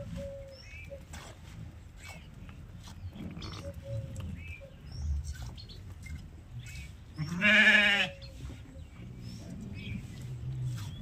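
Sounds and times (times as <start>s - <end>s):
sheep bleating: 7.2s - 8.2s.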